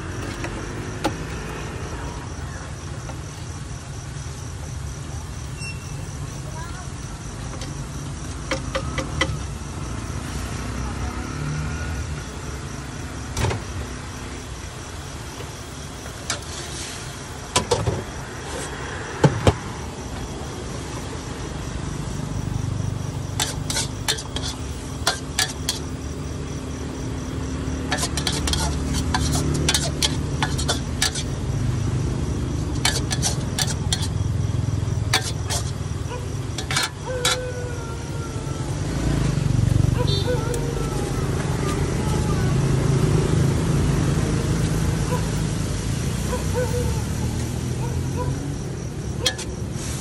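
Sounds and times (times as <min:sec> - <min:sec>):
metal spatula scraping a wok: 0:23.3 - 0:26.0, 0:27.8 - 0:31.4, 0:32.6 - 0:34.2, 0:35.0 - 0:35.8, 0:36.5 - 0:37.4, 0:49.2 - 0:50.0.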